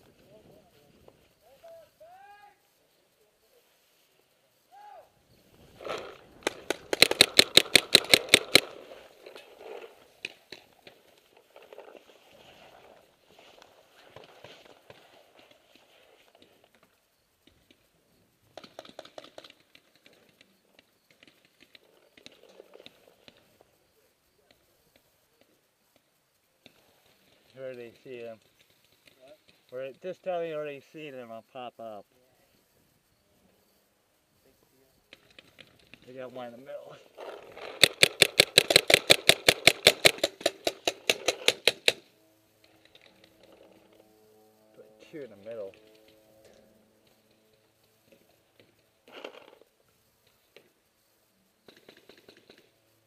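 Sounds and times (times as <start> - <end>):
paintball markers firing: 5.8 - 8.9, 37.3 - 42.0.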